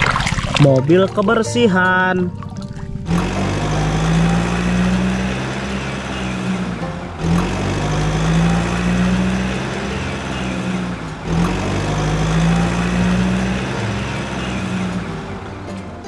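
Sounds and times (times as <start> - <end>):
toy truck engine sound effect: 3.1 - 15.9.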